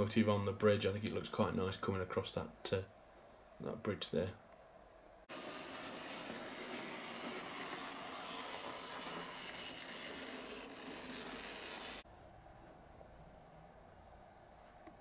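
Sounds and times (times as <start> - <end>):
model train running on track: 5.4 - 12.0.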